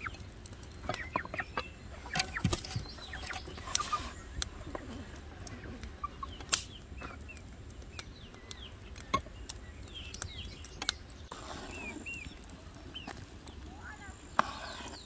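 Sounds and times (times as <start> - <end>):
small birds chirping: 0.0 - 15.0
sharp clicks: 5.4 - 11.3.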